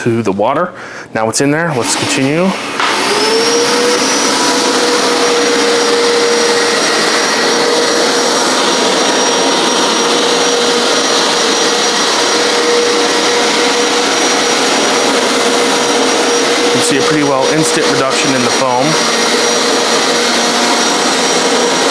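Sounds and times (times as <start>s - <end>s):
carpet cleaner motor whine: 1.8s - 21.9s.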